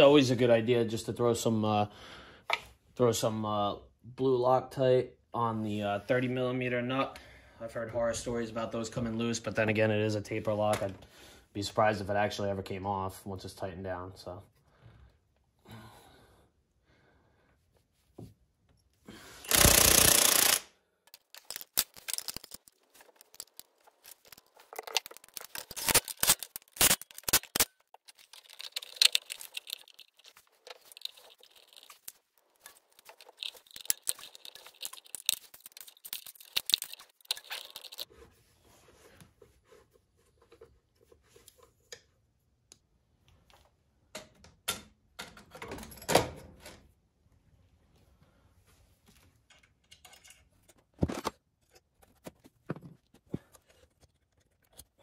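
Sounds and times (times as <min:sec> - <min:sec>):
power impact wrench: 0:19.5 - 0:20.7
metallic clicks and knocks of tools: 0:49.5 - 0:50.8.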